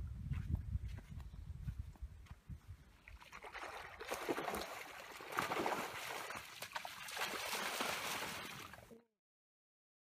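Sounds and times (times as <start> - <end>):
shallow water splashing: 3.0 - 8.9.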